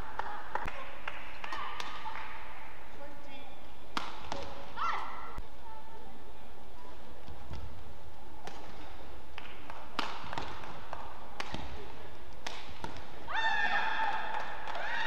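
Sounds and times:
rackets hitting shuttlecock: 3.9s - 5.4s, 8.4s - 15.0s.

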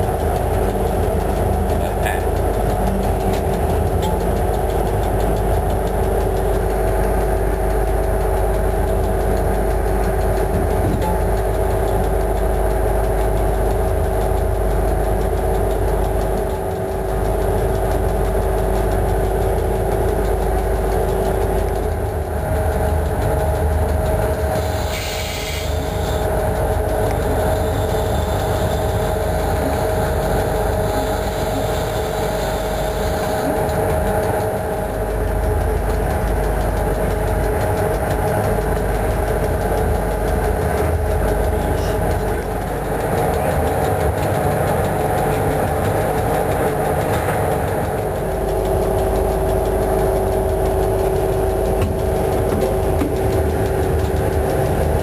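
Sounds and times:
humming tones: 0.0s - 55.0s
train running drone: 0.0s - 55.0s
short hiss: 24.8s - 25.7s.

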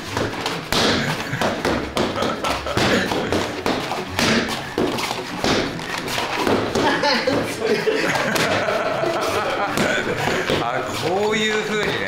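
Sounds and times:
thumps on padded kick shield: 0.0s - 7.6s.

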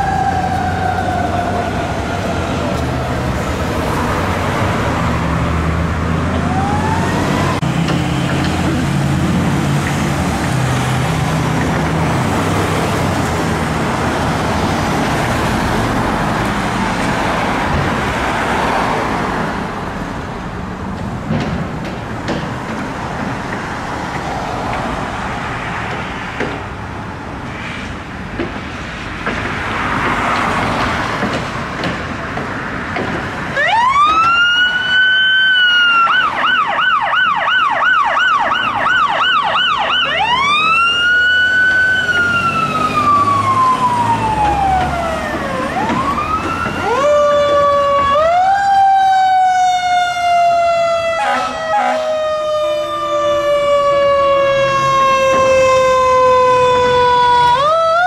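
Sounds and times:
emergency vehicle siren: 0.0s - 19.7s, 33.5s - 58.0s
street traffic: 0.0s - 58.0s
truck engine: 0.0s - 58.0s.

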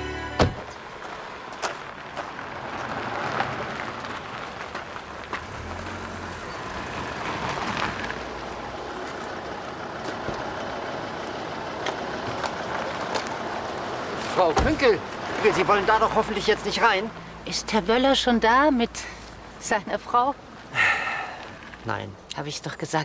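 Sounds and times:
low car engine: 0.0s - 19.6s
tyres crunching on gravel: 0.6s - 17.2s.

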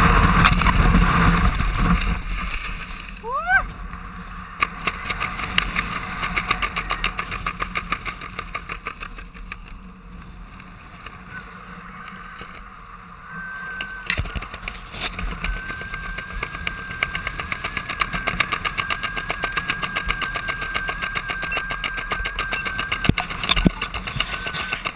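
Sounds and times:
parachute fabric flapping: 4.8s - 11.3s
thin high whistle: 13.2s - 23.2s.

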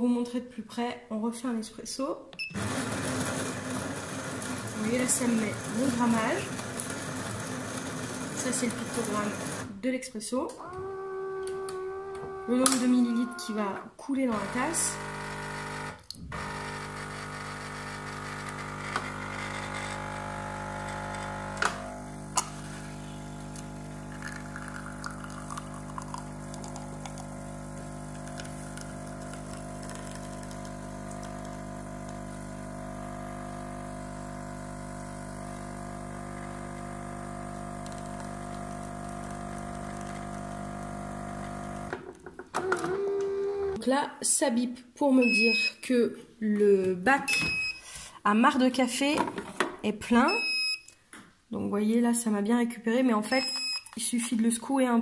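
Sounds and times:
espresso machine pump humming: 2.6s - 9.6s, 14.3s - 42.0s, 42.6s - 43.7s.

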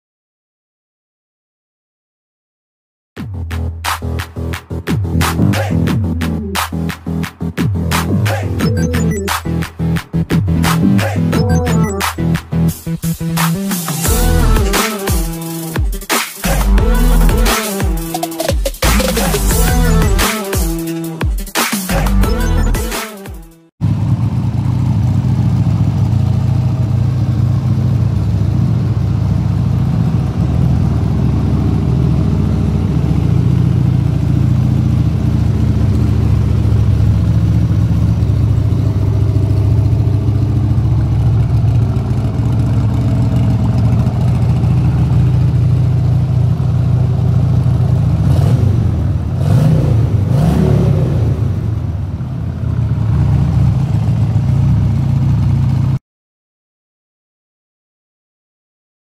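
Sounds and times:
motorcycle engine idling and revving: 9.4s - 20.8s, 23.8s - 56.0s.

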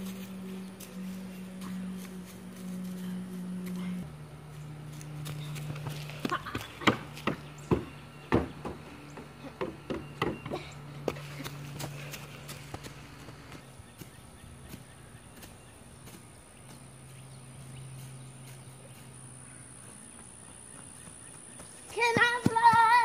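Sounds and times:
steady low hum: 0.0s - 23.0s
footsteps on wooden stairs: 5.7s - 12.9s.

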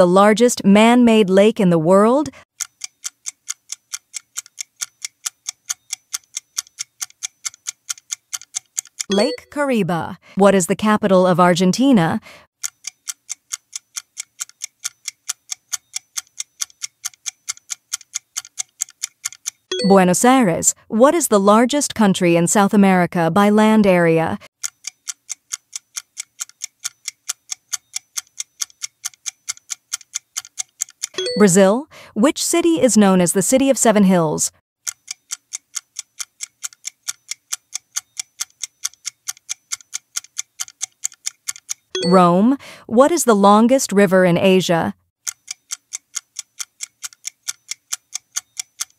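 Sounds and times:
countdown timer ticking: 0.8s - 18.2s, 19.5s - 20.9s, 31.1s - 34.4s, 41.5s - 44.9s
clock-like timer ticks: 1.1s - 9.6s, 11.6s - 20.4s, 23.6s - 31.7s, 34.8s - 42.8s, 45.2s - 48.9s.

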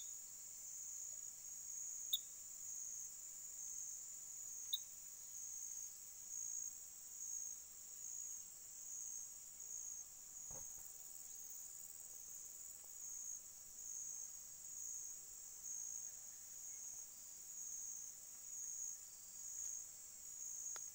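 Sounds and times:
insects trilling: 0.8s - 20.9s
soft thump: 10.5s - 10.9s.

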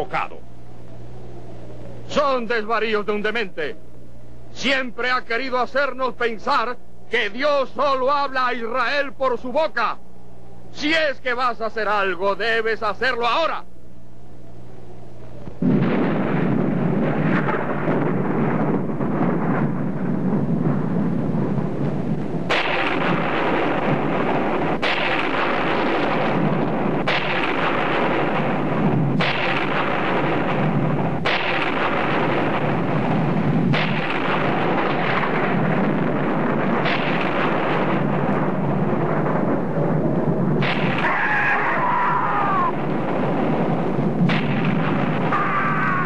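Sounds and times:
earthquake rumbling and crashing: 15.6s - 46.0s.

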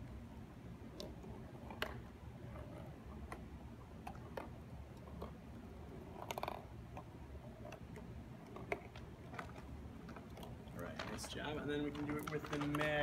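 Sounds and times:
ball rattling in maze: 4.0s - 13.0s
ball tapping cardboard walls: 10.8s - 13.0s.

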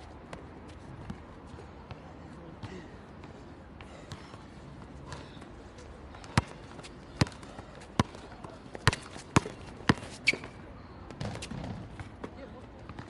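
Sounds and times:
basketball bouncing on asphalt: 6.1s - 13.0s.

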